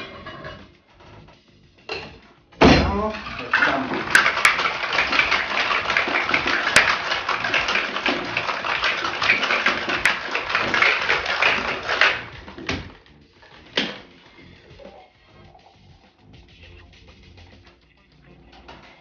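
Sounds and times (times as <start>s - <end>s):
ice rattling in cocktail shaker: 3.0s - 12.8s.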